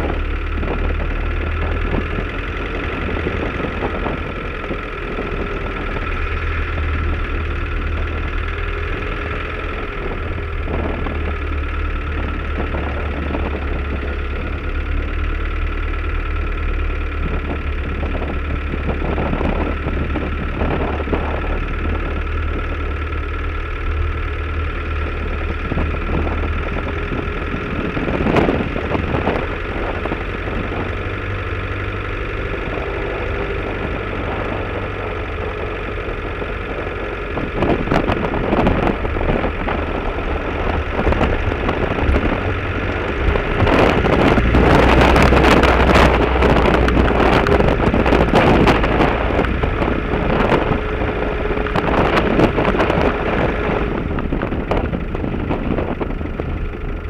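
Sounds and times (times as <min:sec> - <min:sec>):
vehicle engine running: 0:00.0 - 0:57.0
wind buffeting microphone: 0:00.0 - 0:57.0.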